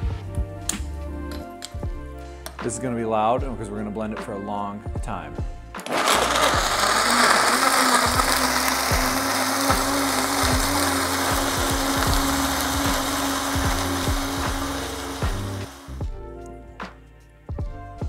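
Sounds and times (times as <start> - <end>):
blender motor running: 5.8 - 16.0
liquid churning: 5.9 - 15.8.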